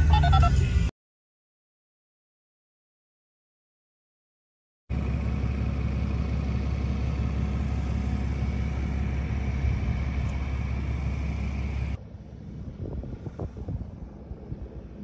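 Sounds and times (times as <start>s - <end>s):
pickup truck engine running: 4.9s - 15.0s.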